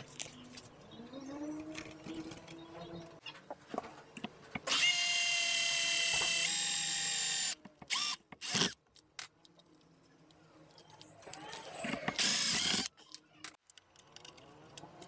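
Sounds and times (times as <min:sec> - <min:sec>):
cordless drill boring a hole: 0:04.7 - 0:08.7, 0:12.1 - 0:12.9.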